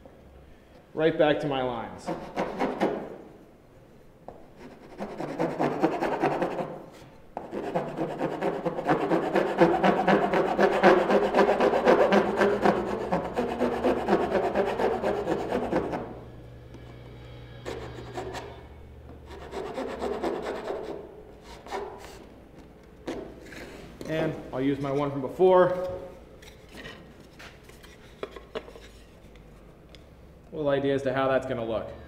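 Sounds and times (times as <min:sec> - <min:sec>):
file rasping on wood: 0:02.1 - 0:03.1, 0:04.6 - 0:06.8, 0:07.4 - 0:16.2, 0:17.6 - 0:18.6, 0:19.3 - 0:22.2.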